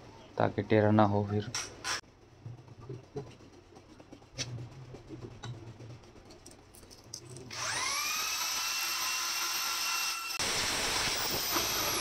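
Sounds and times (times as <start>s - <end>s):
electric drill whining: 7.5s - 12.0s.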